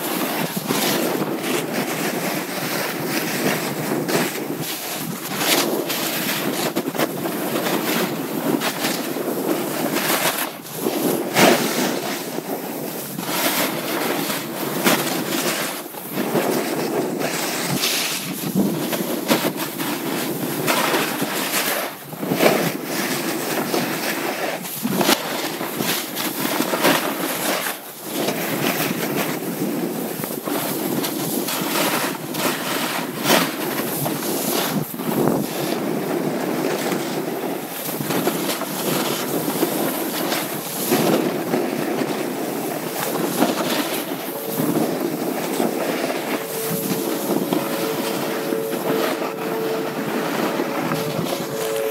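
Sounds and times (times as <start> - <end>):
snowboard scraping on snow: 0.0 - 51.9
wind on microphone: 0.0 - 51.9
steady two-note hum: 44.2 - 51.9.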